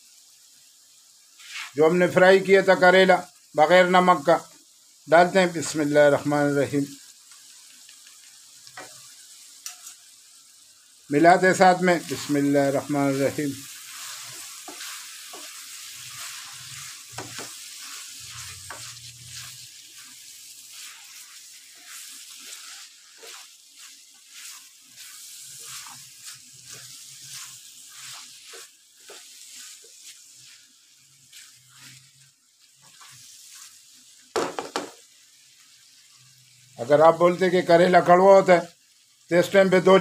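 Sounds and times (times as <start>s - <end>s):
food sizzling in a pan: 0.0s - 40.0s
spatula scraping a pan: 1.4s - 1.8s, 8.7s - 9.9s, 11.9s - 33.8s.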